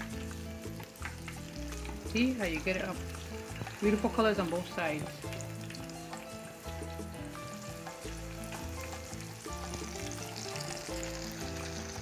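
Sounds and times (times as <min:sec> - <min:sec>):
plantains sizzling in oil: 0:00.0 - 0:12.0
background music with bass: 0:05.1 - 0:12.0.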